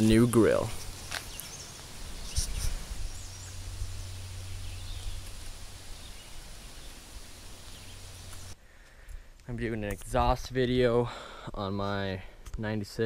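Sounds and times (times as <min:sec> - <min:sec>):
faint bird chirps: 0:00.2 - 0:08.6
low steady hum: 0:00.6 - 0:08.6.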